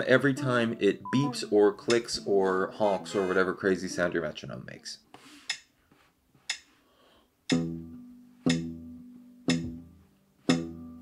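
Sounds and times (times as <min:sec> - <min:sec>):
plucked acoustic guitar notes: 0:00.0 - 0:04.4, 0:07.5 - 0:11.0
metronome click: 0:01.1 - 0:02.2, 0:07.5 - 0:11.0.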